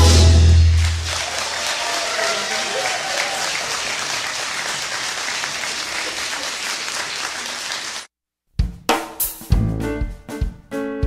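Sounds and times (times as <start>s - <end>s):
audience applauding: 0.6s - 8.1s
drum hits: 8.6s - 10.7s
keyboard chords: 9.6s - 11.0s.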